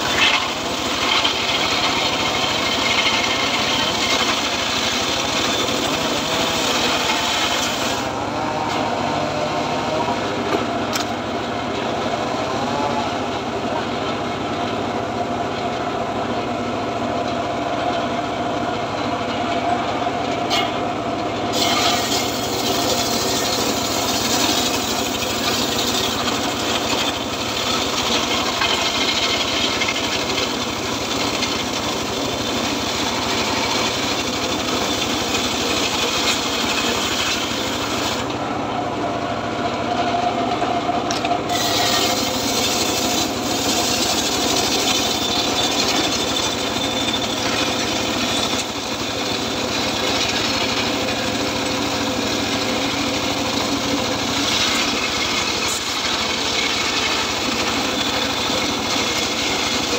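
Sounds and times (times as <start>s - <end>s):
saw blade rasping through wood: 0.0s - 10.6s, 21.5s - 38.4s, 41.5s - 59.9s
engine drone: 0.0s - 59.9s.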